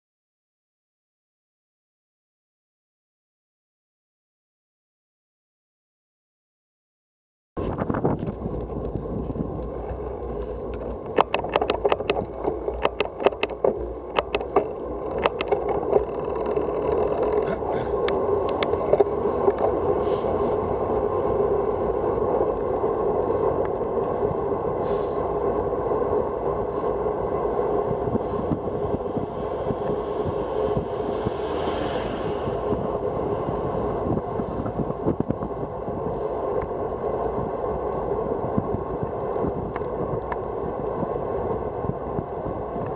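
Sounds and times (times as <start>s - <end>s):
bicycle tyre noise: 7.6s - 42.9s
wind on microphone: 7.6s - 42.9s
sharp clicks and knocks: 10.7s - 19.8s.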